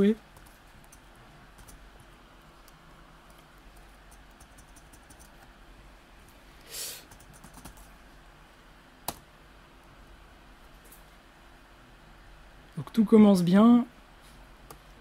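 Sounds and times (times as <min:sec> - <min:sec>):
computer keyboard keystrokes: 0:00.4 - 0:01.8, 0:04.1 - 0:05.5, 0:07.1 - 0:07.9.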